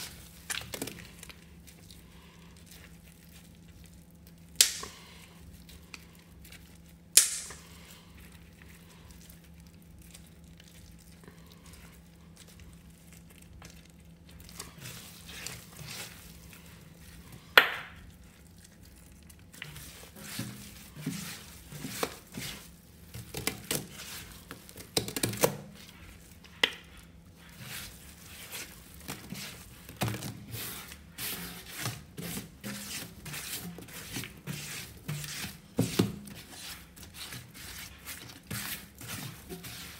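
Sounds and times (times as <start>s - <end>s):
sharp snaps: 4.6s - 4.9s, 7.2s - 7.6s.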